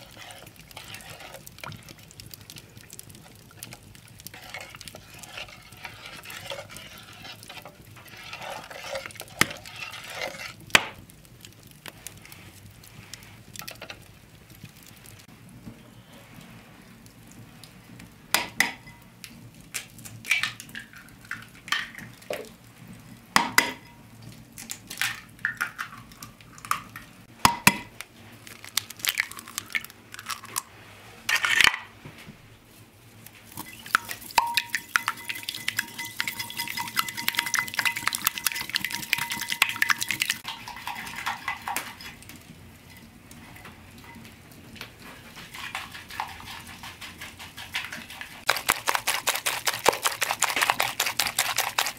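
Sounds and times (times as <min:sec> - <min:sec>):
eggs beaten in bowl: 0:00.0 - 0:10.7, 0:33.5 - 0:42.2, 0:45.3 - 0:51.9
eggs cracking on bowl: 0:24.7 - 0:30.7, 0:33.5 - 0:42.0, 0:45.7 - 0:51.9.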